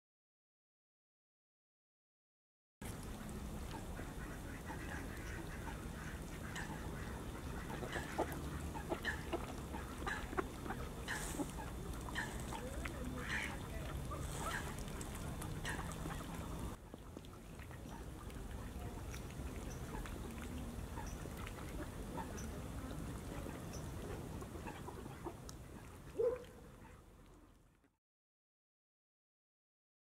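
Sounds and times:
ducks quacking: 3.1 - 18.9, 19.6 - 27.1
geese honking: 3.7 - 16.8.

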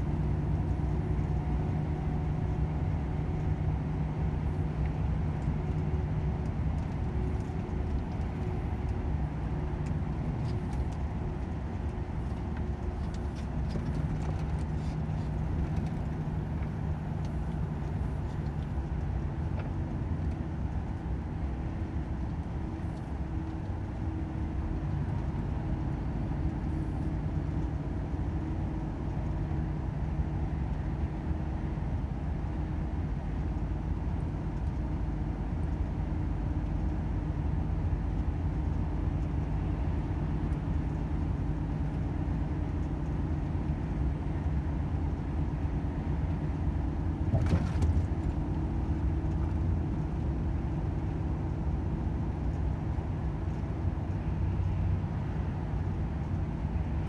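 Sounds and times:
low rumble: 31.8 - 54.2.

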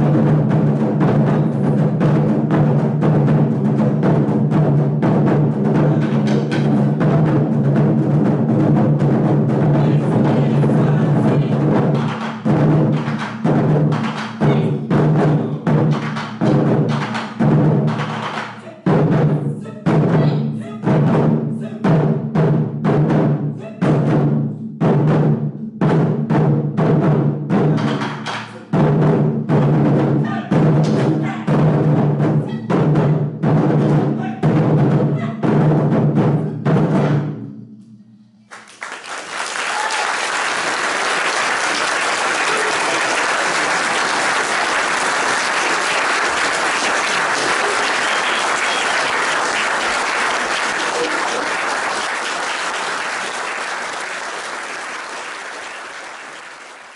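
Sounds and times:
taiko drums struck with sticks: 0.0 - 37.8
audience applause: 38.5 - 56.9.

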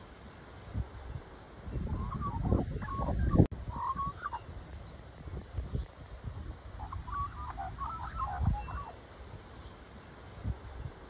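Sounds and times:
magpie warbling: 6.8 - 9.0.

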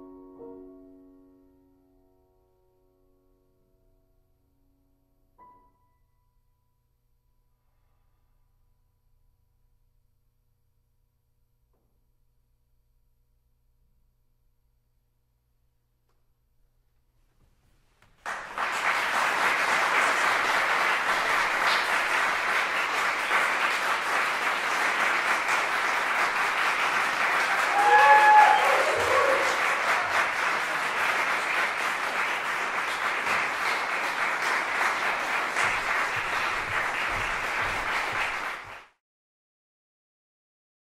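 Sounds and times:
audience applauding: 18.2 - 39.0.

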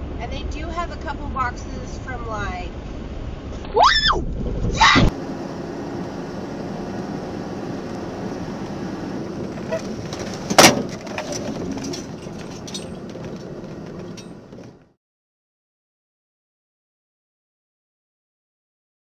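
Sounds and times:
vehicle engine and road noise: 0.0 - 15.0.

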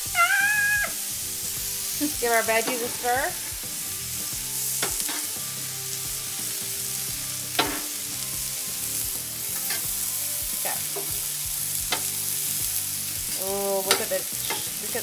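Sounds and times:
food sizzling on a griddle: 0.0 - 15.0
spatula clinking on steel: 9.5 - 10.0, 13.8 - 14.8.

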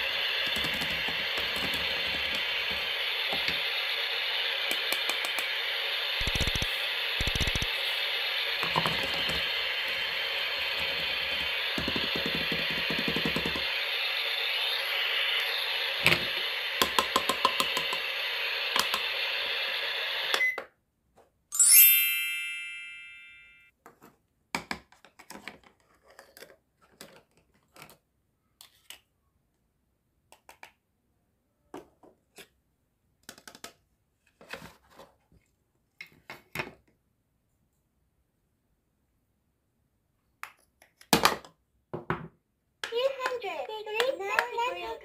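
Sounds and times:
frying sizzle: 0.0 - 20.3
plastic toy cookware clicks: 16.8 - 18.0
bright ding: 21.6 - 23.7.

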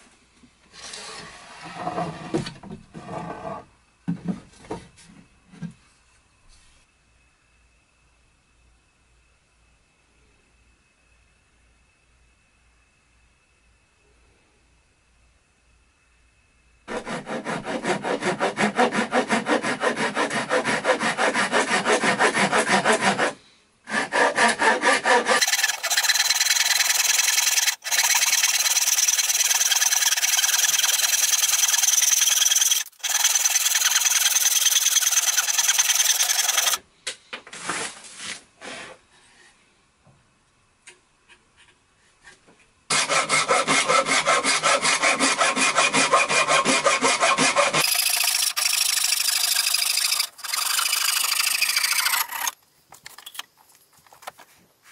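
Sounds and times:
hand saw cutting wood: 16.9 - 36.8, 42.9 - 52.6.

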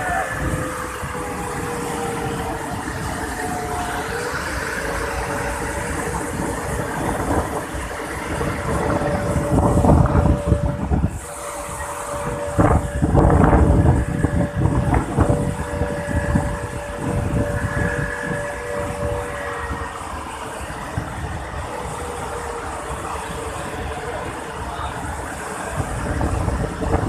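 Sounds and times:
steady rushing noise: 0.0 - 27.0
wind buffeting microphone: 0.0 - 27.0.

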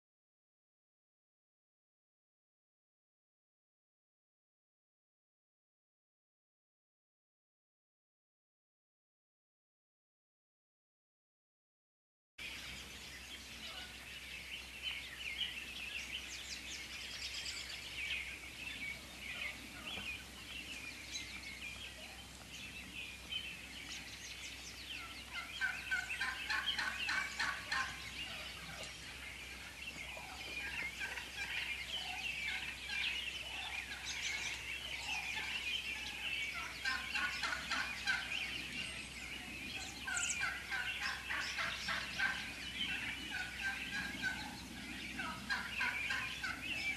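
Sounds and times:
wild turkeys calling: 13.6 - 14.1, 16.0 - 46.9.

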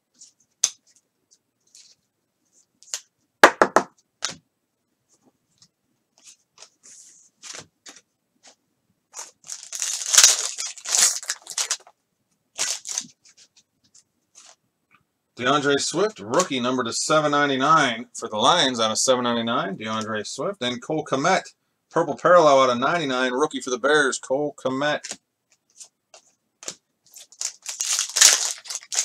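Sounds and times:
foil wrapper tearing and crinkling: 9.2 - 11.9, 12.6 - 13.1, 27.1 - 29.0.

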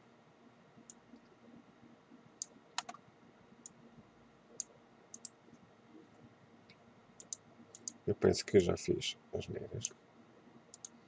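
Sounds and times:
faint steady hiss: 0.0 - 11.0
computer mouse and keyboard clicks: 2.8 - 3.0.

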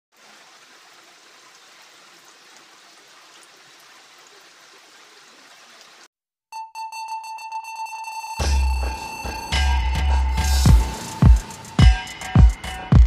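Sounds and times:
steady rain falling: 0.1 - 6.1.

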